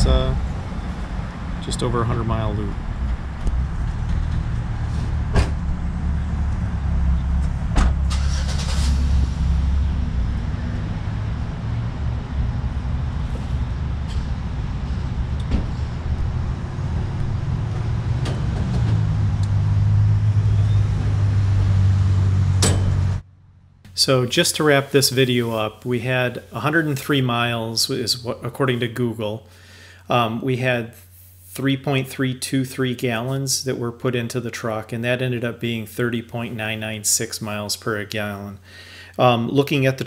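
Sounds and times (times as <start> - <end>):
low engine rumble: 0.0 - 26.9.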